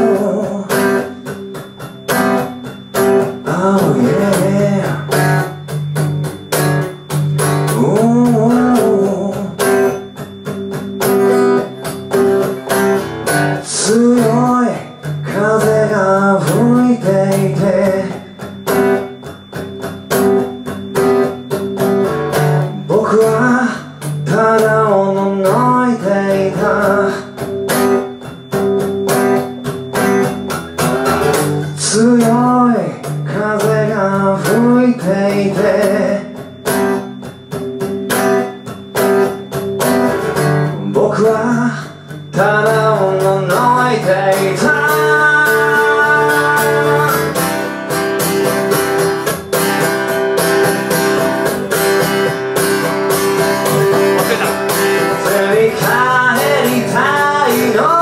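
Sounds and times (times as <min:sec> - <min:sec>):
man singing: 0:00.0 - 0:01.3, 0:03.2 - 0:05.5, 0:07.7 - 0:09.9, 0:13.6 - 0:18.4, 0:22.7 - 0:27.4, 0:31.8 - 0:36.5, 0:40.7 - 0:47.5, 0:54.0 - 0:58.0
strummed acoustic guitar: 0:00.0 - 0:58.0.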